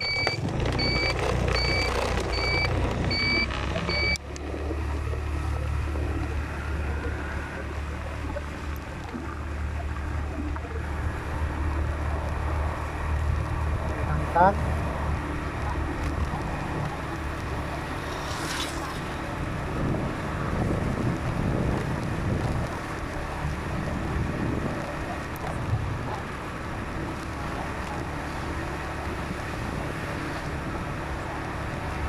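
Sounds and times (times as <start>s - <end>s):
low rumble: 0.0s - 31.8s
vehicle road noise: 0.0s - 32.0s
wind buffeting microphone: 19.0s - 32.0s.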